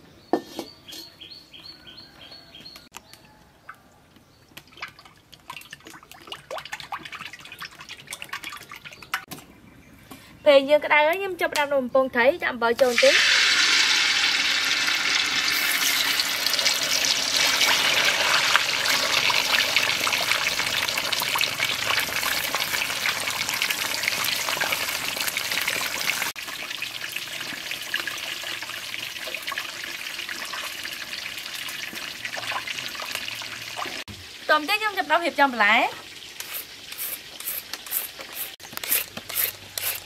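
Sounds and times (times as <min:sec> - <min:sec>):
fish sizzling in hot oil: 0:12.8 - 0:39.0.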